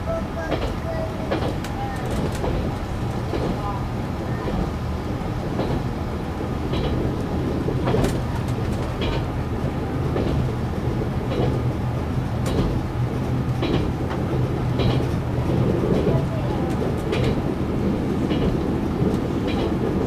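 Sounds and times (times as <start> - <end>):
diesel train drone: 0.0 - 20.0
wheels clacking over rail joints: 0.1 - 20.0.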